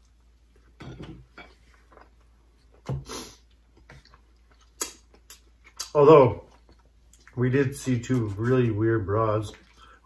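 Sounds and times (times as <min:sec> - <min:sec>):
chewing mouth noises: 0:01.7 - 0:08.5, 0:09.4 - 0:10.0.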